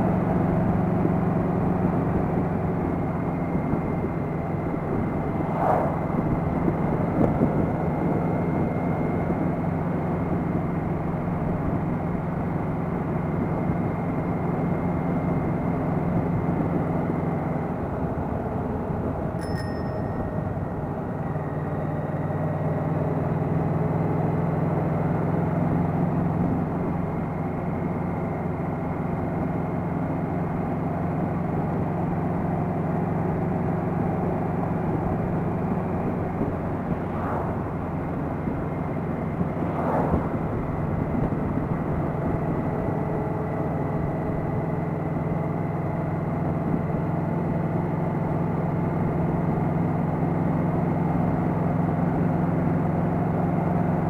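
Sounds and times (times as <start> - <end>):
road and wind noise: 0.0 - 54.0.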